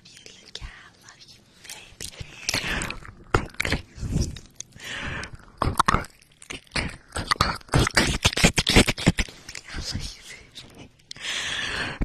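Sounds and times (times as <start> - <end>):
wet mouth clicks and smacks: 2.0 - 4.8.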